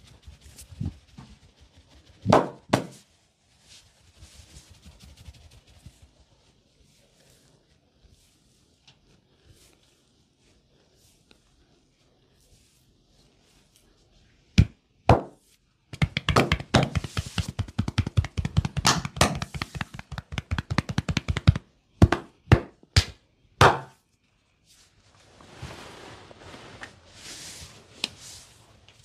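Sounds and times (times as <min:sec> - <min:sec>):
hands slapping bare skin: 0:14.6 - 0:24.0.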